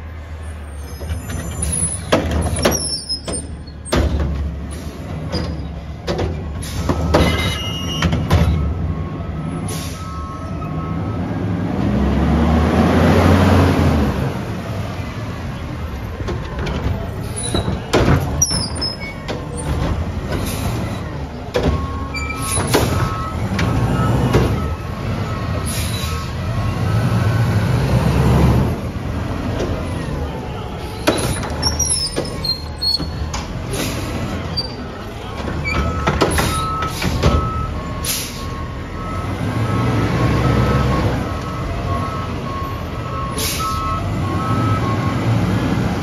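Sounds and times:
bangs and clanks of carts: 0:00.7 - 0:10.0, 0:15.8 - 0:26.6, 0:28.3 - 0:38.6
diesel engine running and revving: 0:08.0 - 0:46.0.

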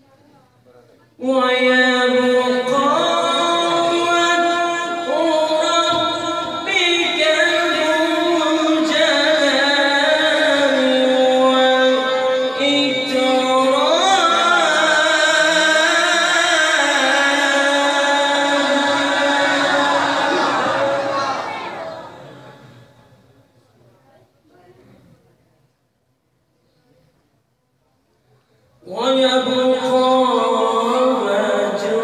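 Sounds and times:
man reciting melodically: 0:01.0 - 0:23.2, 0:28.8 - 0:32.0.

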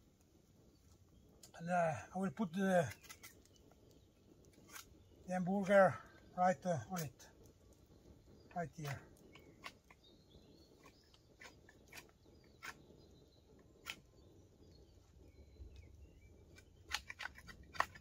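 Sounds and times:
campfire coals crackling: 0:00.0 - 0:18.0.

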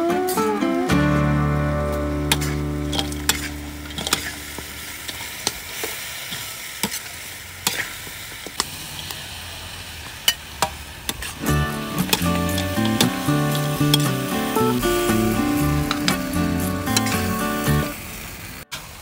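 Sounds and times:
food sizzling in hot oil: 0:02.2 - 0:19.0
metal spatula scraping wok: 0:02.3 - 0:08.0, 0:11.1 - 0:17.9.

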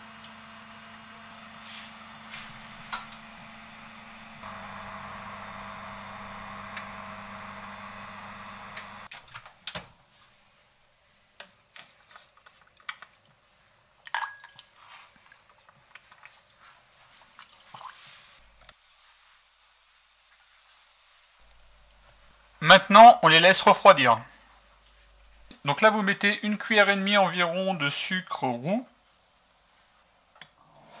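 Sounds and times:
appliance hum: 0:00.0 - 0:09.2.

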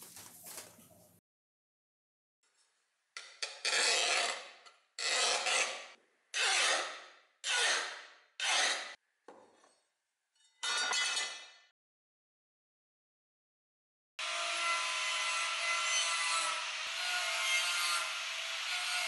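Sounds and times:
file scraping steel blade: 0:03.2 - 0:09.0, 0:10.4 - 0:11.6, 0:14.3 - 0:19.0.

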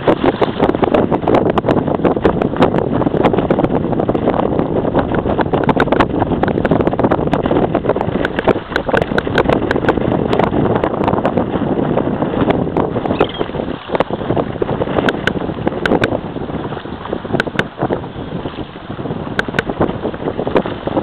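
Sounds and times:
waves splashing against kayak hull: 0:00.0 - 0:21.0
wind buffeting microphone: 0:00.0 - 0:21.0.

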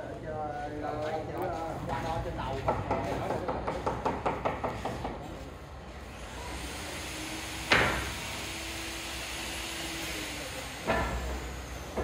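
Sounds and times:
sharp knock: 0:07.7 - 0:08.1.

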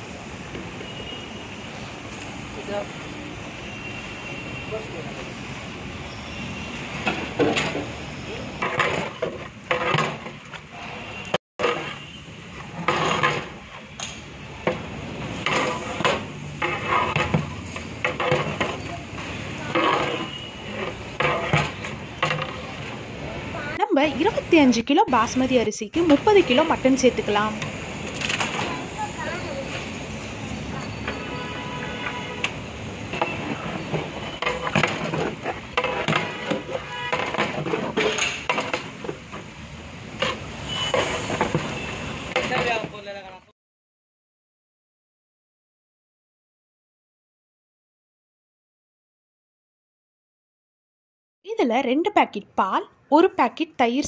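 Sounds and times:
metal ladle scraping a metal pot: 0:15.4 - 0:18.9, 0:19.7 - 0:22.8.

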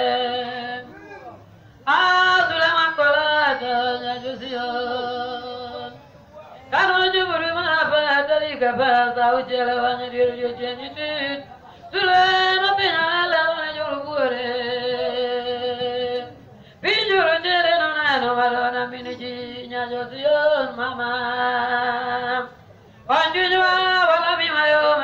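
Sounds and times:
voices singing a chanted hymn: 0:00.0 - 0:01.1, 0:01.9 - 0:06.1.

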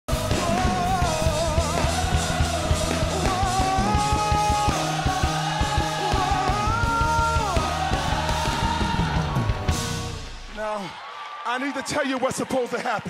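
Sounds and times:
gospel band playing: 0:00.1 - 0:11.0.

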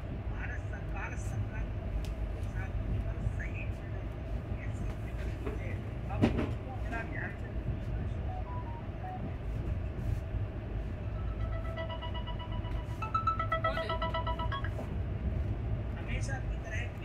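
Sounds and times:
train rumbling: 0:00.0 - 0:17.0
short pulsing tune: 0:11.0 - 0:15.0.

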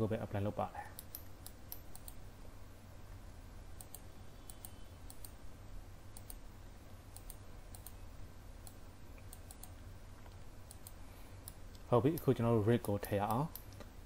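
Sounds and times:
faint low hum: 0:00.0 - 0:14.0
mouse clicks: 0:00.9 - 0:02.2, 0:03.8 - 0:05.4, 0:06.1 - 0:06.4, 0:07.1 - 0:08.0, 0:08.6 - 0:14.0.

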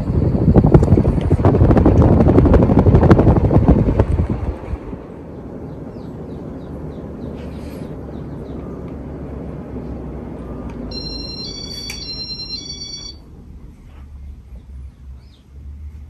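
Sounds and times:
ceiling fan whooshing: 0:00.0 - 0:16.0
electronic beeping tune: 0:10.9 - 0:13.2.

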